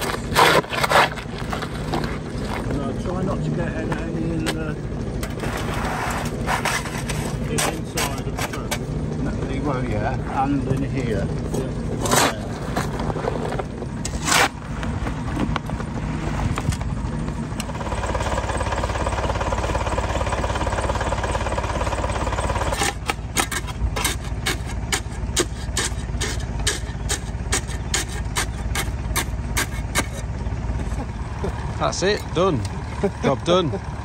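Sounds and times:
shovel knocking wet concrete: 0.0s - 2.7s, 5.2s - 8.9s, 12.0s - 12.9s, 22.7s - 30.2s
tractor engine running: 0.0s - 34.0s.

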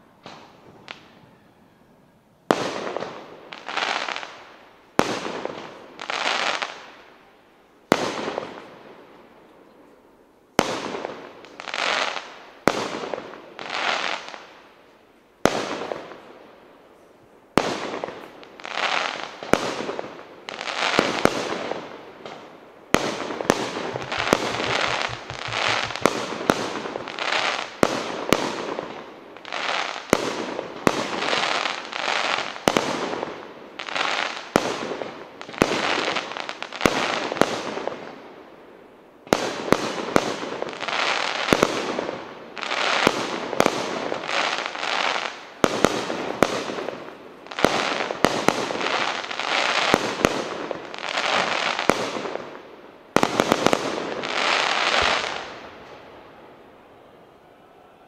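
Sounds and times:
firework stars crackling: 17.5s - 38.2s
firework shell bursts: 23.5s - 26.9s.

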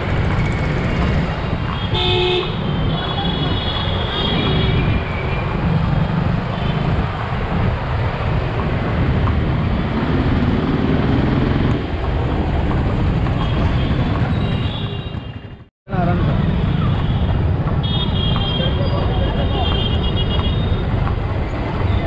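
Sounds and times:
traffic rumble: 0.0s - 22.0s
vehicle horn: 1.8s - 4.9s.

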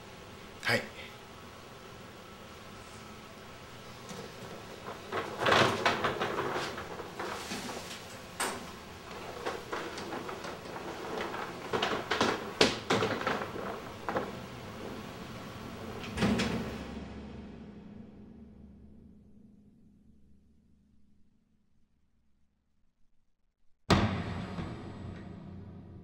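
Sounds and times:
clothing rustling: 3.9s - 15.3s
footsteps: 4.0s - 15.8s
door clicks and knocks: 8.2s - 15.3s, 16.0s - 16.8s.

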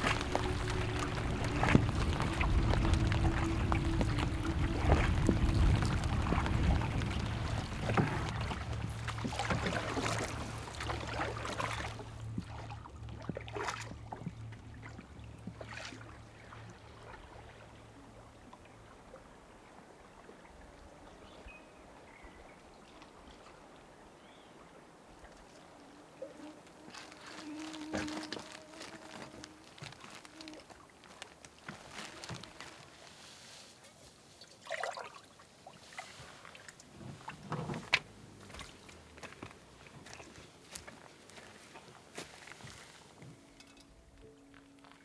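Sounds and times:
heavy rain on water: 0.0s - 13.1s, 25.4s - 33.6s
rain drops hitting canoe: 0.0s - 16.0s, 24.8s - 33.8s, 36.1s - 44.2s
lakeside ambience: 0.0s - 45.0s.

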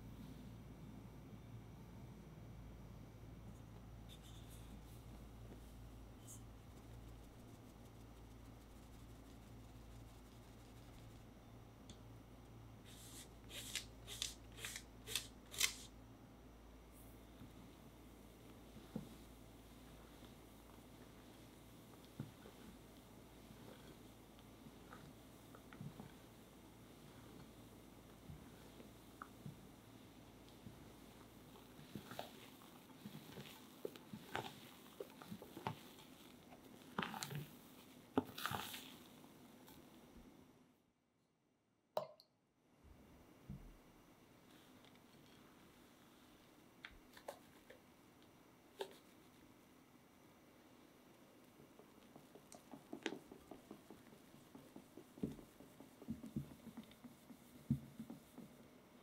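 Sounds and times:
batter squishing: 30.8s - 39.8s.

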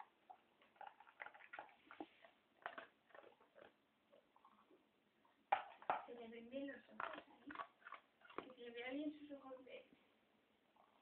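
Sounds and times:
dog chewing food: 0.0s - 4.8s, 5.5s - 9.0s.

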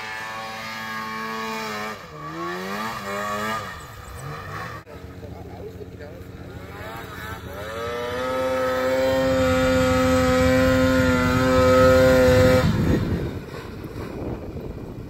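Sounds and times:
snowmobile engine revving: 0.0s - 15.0s.

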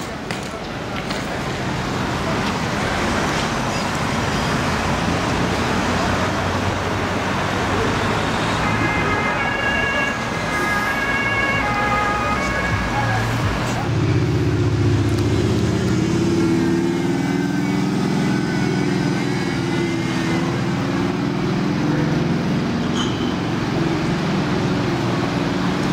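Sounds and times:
city street traffic: 0.0s - 25.9s
two-tone siren: 8.6s - 13.2s, 16.7s - 20.6s.

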